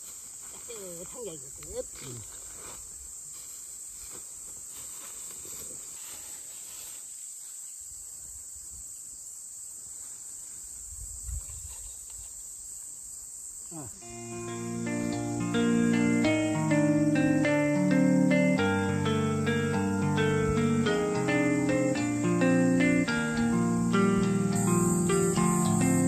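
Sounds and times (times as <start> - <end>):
faint rustles: 0.0 - 7.8
insects chirring in grass: 0.0 - 26.0.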